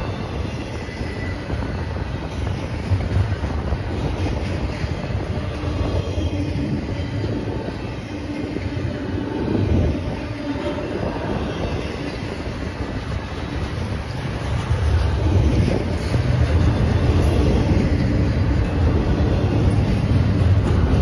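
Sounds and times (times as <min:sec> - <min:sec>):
freight train wheels on rails: 0:00.0 - 0:21.0.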